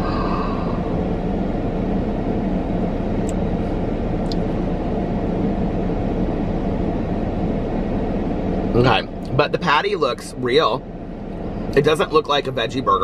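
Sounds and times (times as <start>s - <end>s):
car cabin engine rumble: 0.0s - 13.0s.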